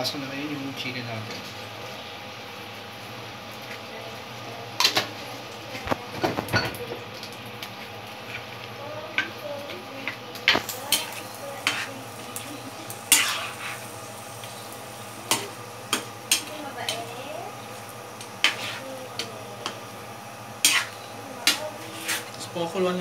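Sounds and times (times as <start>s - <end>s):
ladle clinking and scraping pan: 20.6s - 22.4s.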